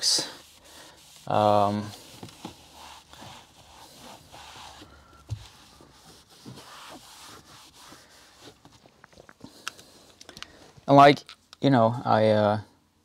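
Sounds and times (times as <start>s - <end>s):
brush scrubbing plastic trim: 0.0s - 9.0s.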